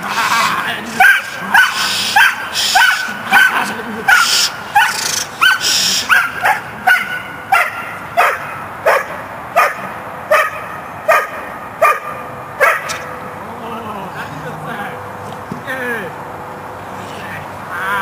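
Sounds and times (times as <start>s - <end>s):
dog barking sharply: 1.0s - 13.1s.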